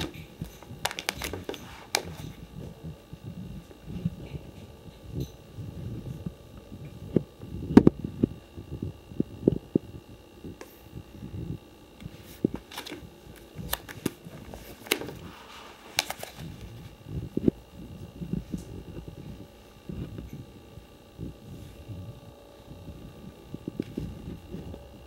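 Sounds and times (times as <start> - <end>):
plastic sleeve pages turning: 0.0 - 2.4, 12.5 - 16.8
crinkling rustles: 0.0 - 4.7, 12.0 - 17.0
faint steady hum: 0.0 - 25.0.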